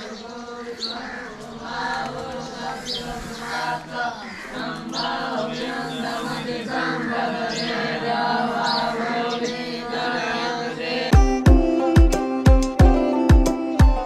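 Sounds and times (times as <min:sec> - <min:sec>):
students chanting in unison: 0:00.0 - 0:11.2
music with heavy drum beats: 0:11.1 - 0:14.0.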